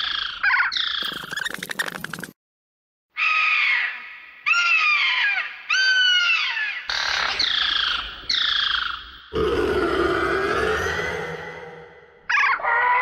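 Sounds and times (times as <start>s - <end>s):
shrill descending creature screeches: 9.4s - 13.0s.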